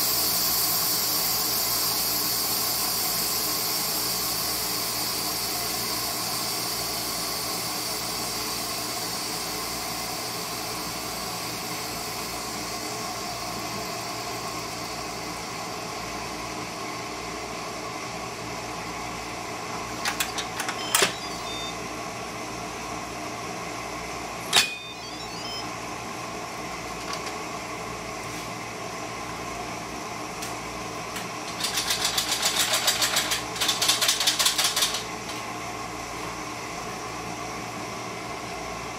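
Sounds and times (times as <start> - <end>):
pressure cooker steam hissing: 0.0 - 15.4
rattling run of clicks: 31.5 - 35.1.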